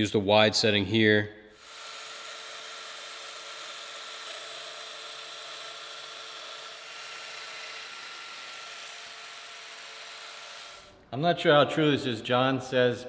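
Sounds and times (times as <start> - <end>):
joiner machine cutting wood: 1.6 - 10.9.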